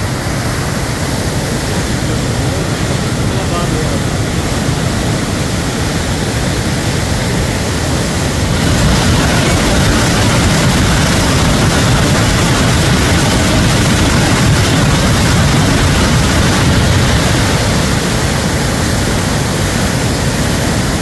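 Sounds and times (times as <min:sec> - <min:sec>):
rushing river: 0:00.0 - 0:21.0.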